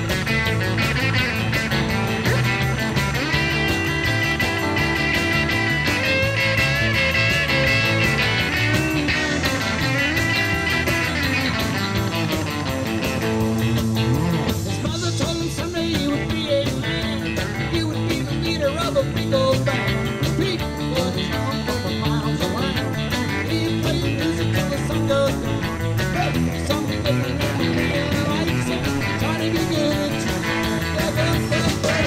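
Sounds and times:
harmonica: 0:00.0 - 0:15.8
live rock band: 0:00.0 - 0:32.0.

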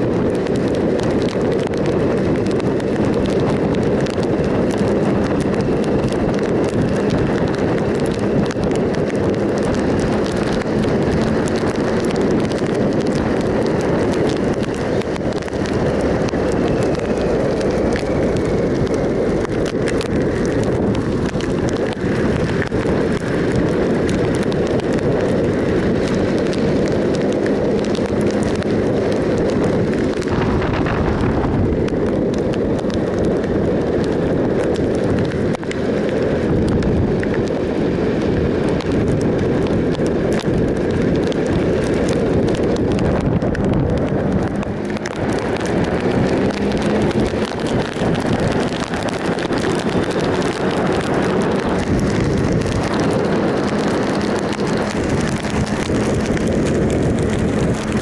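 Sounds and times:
motorcycle engine running: 0:00.0 - 0:58.0
wind rushing over microphone: 0:00.0 - 0:58.0.

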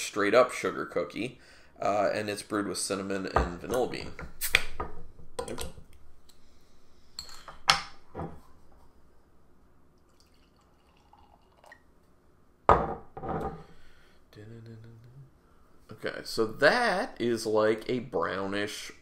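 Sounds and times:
beer pouring into glass: 0:10.1 - 0:11.9.

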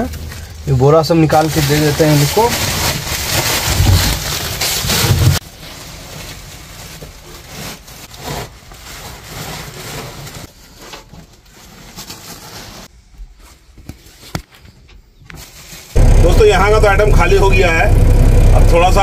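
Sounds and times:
plastic sack rustling: 0:00.0 - 0:14.3.

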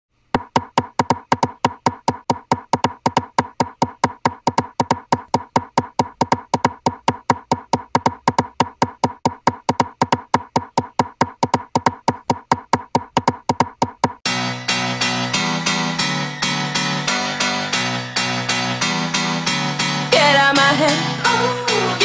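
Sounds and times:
ticking click beat: 0:00.4 - 0:14.2.

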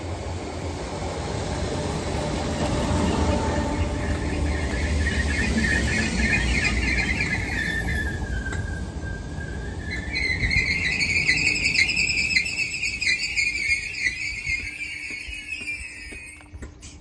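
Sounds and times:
train low rumble: 0:00.0 - 0:17.0
train brake squeal: 0:03.0 - 0:17.0.

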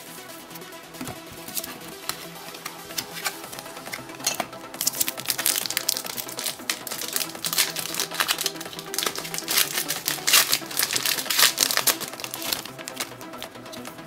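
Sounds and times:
background music: 0:00.0 - 0:14.0
foil wrapper crinkling: 0:04.8 - 0:13.9.

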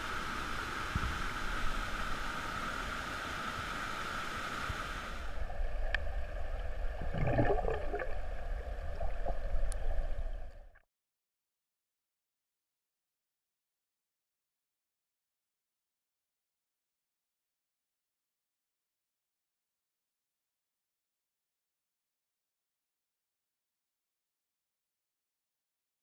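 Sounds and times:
muffled underwater gurgling: 0:04.7 - 0:10.6
bubbling: 0:05.4 - 0:10.8
water rushing over rocks: 0:06.9 - 0:10.0.

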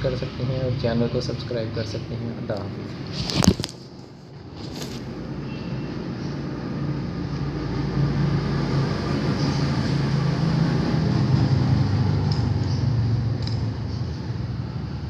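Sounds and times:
vehicle engine rumble passing: 0:05.0 - 0:15.0.

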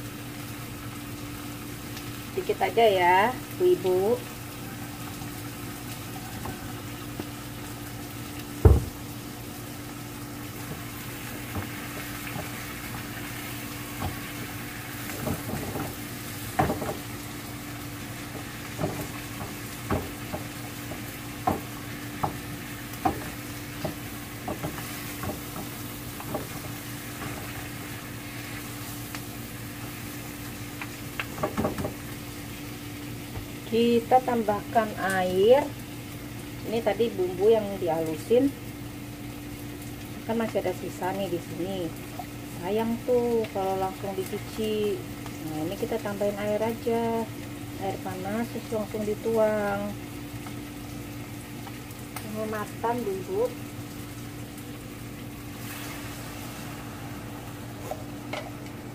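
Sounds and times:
meat sizzling in a pan: 0:00.0 - 0:58.9
heavy thump: 0:08.6 - 0:09.0.

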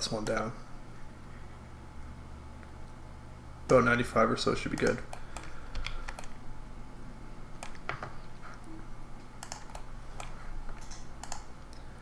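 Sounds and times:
faint low hum: 0:00.0 - 0:12.0
keyboard keys clicking: 0:09.4 - 0:11.5.

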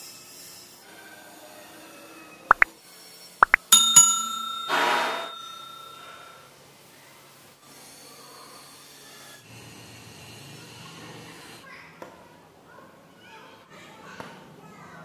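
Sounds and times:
struck chime: 0:03.4 - 0:06.3
bright jingle: 0:03.5 - 0:06.3.

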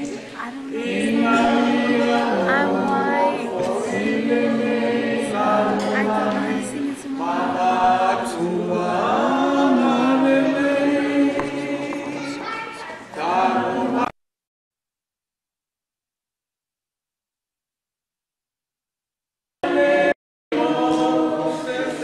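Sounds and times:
choir singing unaccompanied: 0:00.0 - 0:12.5, 0:13.1 - 0:14.1, 0:19.6 - 0:22.0.

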